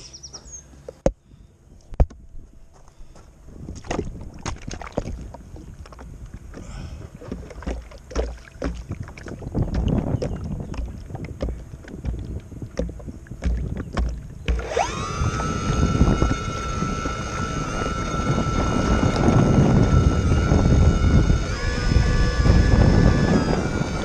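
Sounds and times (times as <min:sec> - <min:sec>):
wind on microphone: 0:03.4 - 0:24.0
small waves slapping hull: 0:03.7 - 0:14.6
electric propeller motor whine: 0:14.4 - 0:24.0.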